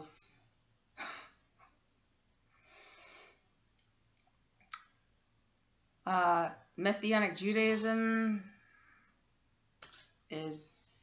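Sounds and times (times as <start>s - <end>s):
woman speaking: 0.0s - 0.3s, 6.1s - 8.6s, 10.3s - 11.0s
woman breathing: 2.5s - 3.6s, 8.5s - 9.3s.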